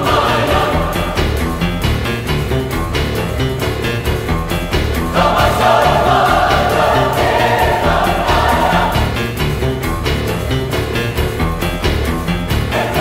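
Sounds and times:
choir singing: 0:00.0 - 0:01.6, 0:05.1 - 0:09.5, 0:12.7 - 0:13.0
music with steady beat: 0:00.0 - 0:13.0.

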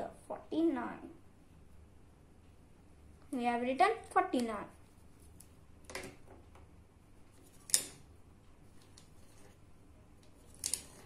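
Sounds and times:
plastic abacus beads clicking: 0:07.4 - 0:08.1, 0:10.2 - 0:11.0.

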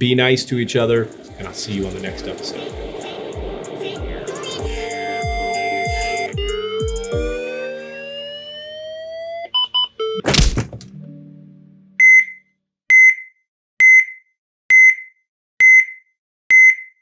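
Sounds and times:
rising electronic sweep: 0:00.0 - 0:09.6
loud thud with whoosh: 0:10.2 - 0:10.9
high electronic beep repeating: 0:12.0 - 0:17.0
quick beeps: 0:12.0 - 0:17.0.

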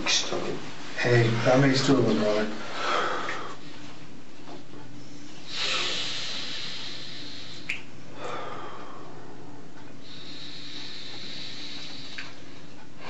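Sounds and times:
low room hum: 0:00.0 - 0:13.0
man breathing heavily: 0:02.6 - 0:03.9, 0:05.3 - 0:13.0.

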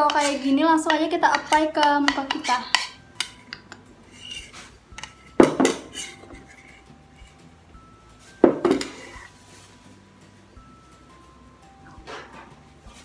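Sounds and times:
metal spoon knocking a bowl: 0:00.0 - 0:03.8, 0:05.0 - 0:06.2, 0:08.4 - 0:09.0.

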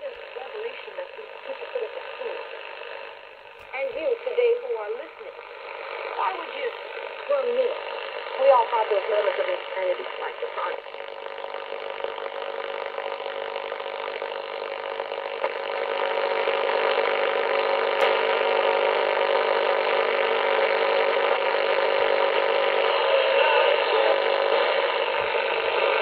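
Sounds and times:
radio static hiss: 0:00.0 - 0:26.0
click: 0:18.0 - 0:18.2.

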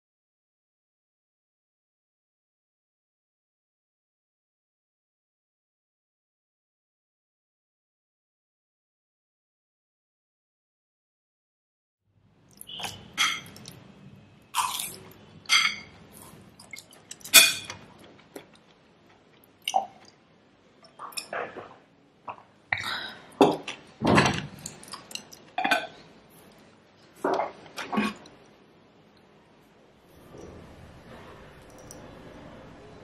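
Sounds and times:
metal spoon clinking on ceramic plate: 0:13.2 - 0:13.7, 0:15.5 - 0:15.9, 0:17.1 - 0:17.8.

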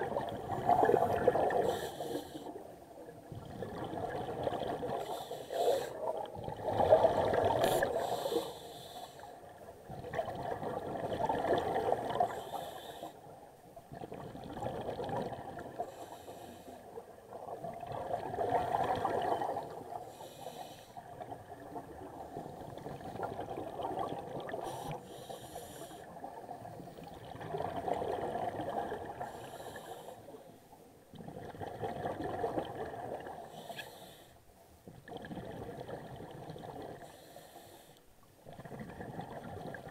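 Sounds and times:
bubbling exhaled air underwater: 0:00.0 - 0:02.4, 0:03.1 - 0:08.4, 0:09.8 - 0:12.5, 0:13.9 - 0:16.0, 0:17.3 - 0:20.0, 0:21.0 - 0:25.0, 0:26.1 - 0:29.6, 0:31.1 - 0:33.5, 0:34.9 - 0:37.1, 0:38.4 - 0:39.9
hissing regulator inhalations: 0:01.6 - 0:02.6, 0:05.0 - 0:06.0, 0:07.6 - 0:09.4, 0:24.6 - 0:26.1.

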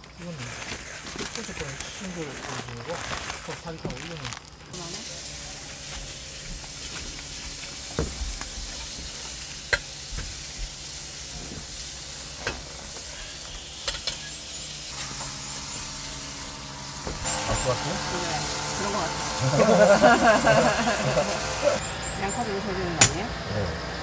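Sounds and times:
food sizzling in a frying pan: 0:04.7 - 0:21.8.

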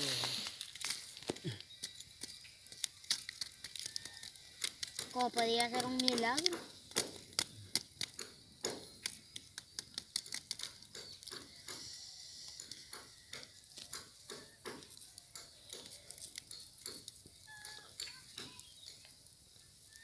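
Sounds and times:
sticks prodding embers: 0:00.0 - 0:20.0
wood fire crackling: 0:00.0 - 0:20.0.

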